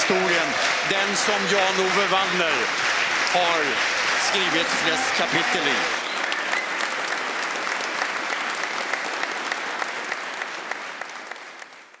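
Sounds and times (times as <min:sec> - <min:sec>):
crowd applauding: 0:00.0 - 0:12.0.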